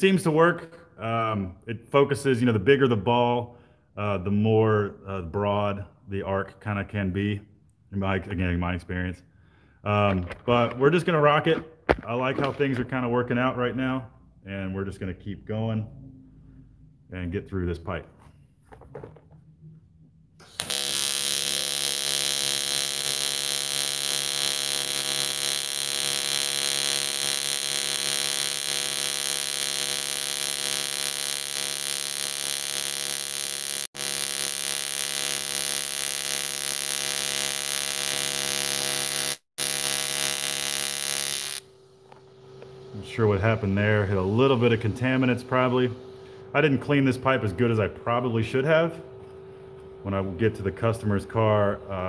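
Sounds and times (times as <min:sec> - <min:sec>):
welding arc buzzing: 0:20.4 - 0:46.2.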